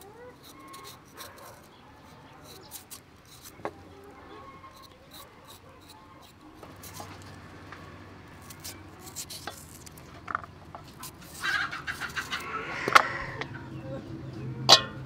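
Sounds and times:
knife scraping vegetable skin: 0.0 - 7.4, 8.3 - 12.5.

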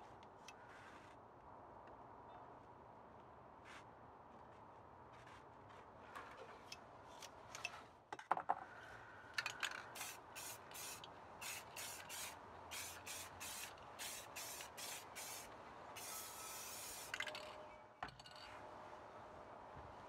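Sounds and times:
spray paint can hissing: 9.9 - 17.4.

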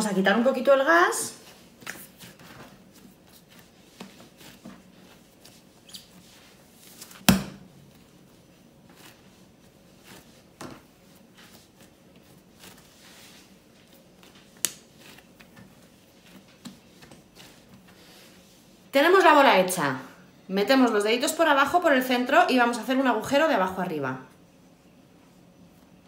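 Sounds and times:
hands kneading dough: 0.0 - 19.5
dough thumping on worktop: 7.2 - 7.8.

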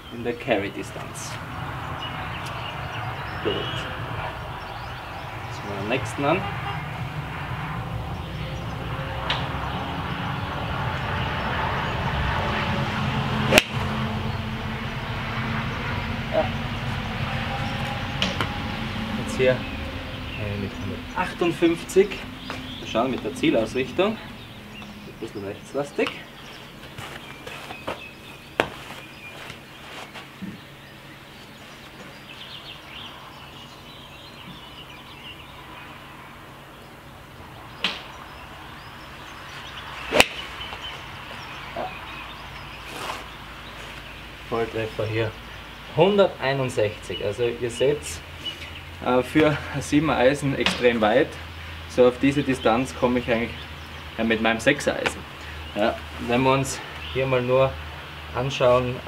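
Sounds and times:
golf club striking ball: 13.4 - 14.4, 40.0 - 40.9
crisp strike: 13.5 - 13.9.

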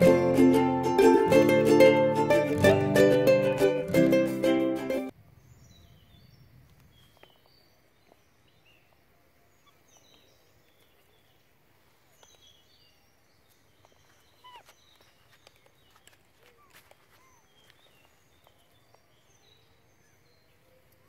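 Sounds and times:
faint bird chirps: 5.2 - 21.0.

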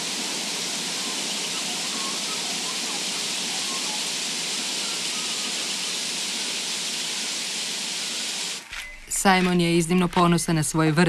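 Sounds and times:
waterfall rushing over rocks: 0.0 - 8.7.

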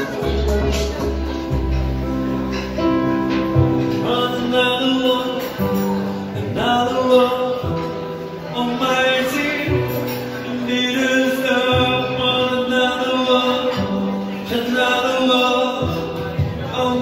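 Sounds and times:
instrumental accompaniment: 0.0 - 17.0
man singing into a microphone: 3.8 - 17.0.

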